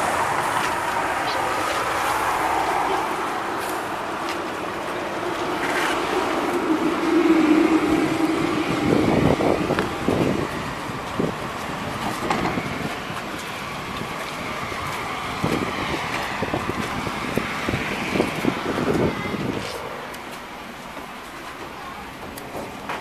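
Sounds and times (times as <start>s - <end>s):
tram drive whining: 0.0s - 23.0s
tram rattling knocks: 7.7s - 13.4s, 20.8s - 23.0s.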